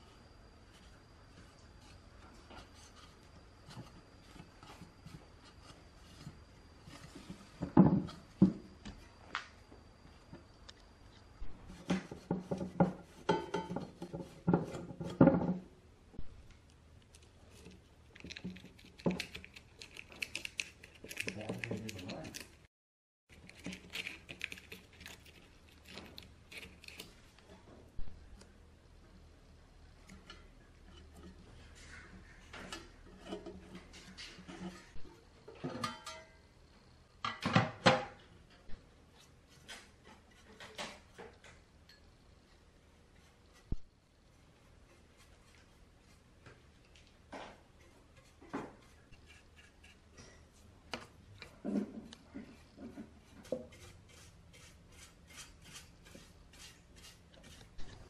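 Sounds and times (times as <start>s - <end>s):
metal frames scraping and knocking: 11.6s - 15.7s, 30.2s - 36.3s
fingers scratching and ticking: 17.0s - 22.6s
paintbrush scratching metal: 44.6s - 46.2s, 47.8s - 50.1s, 52.5s - 57.8s.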